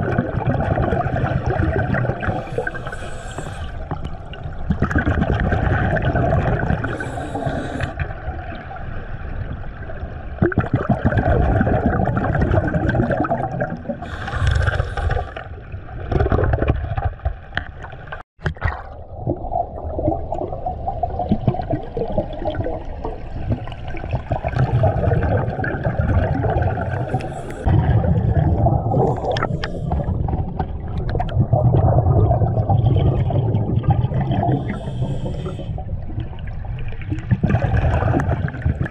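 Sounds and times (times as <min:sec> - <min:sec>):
bubbles hissing: 0:00.0 - 0:08.2, 0:10.4 - 0:15.5, 0:19.3 - 0:38.9
underwater river rumbling: 0:00.0 - 0:38.9.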